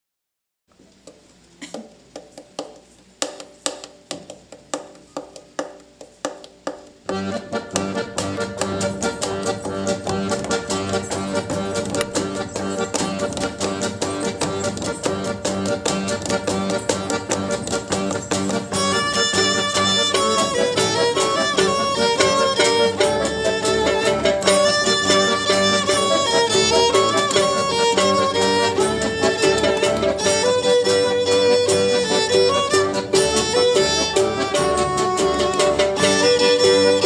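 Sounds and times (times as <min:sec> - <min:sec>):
folk ensemble playing a tune: 0:02.2 - 0:37.0.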